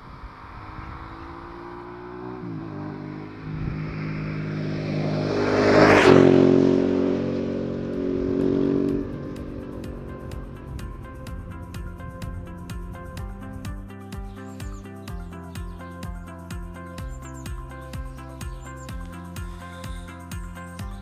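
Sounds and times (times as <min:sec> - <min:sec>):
motorcycle accelerating past: 0:00.0 - 0:13.8
background music: 0:06.4 - 0:21.0.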